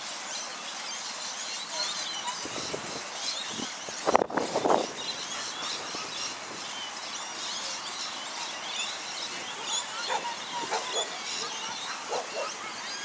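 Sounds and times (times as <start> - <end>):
small birds chirping: 0.0 - 13.0
sharp bird calls: 0.4 - 13.0.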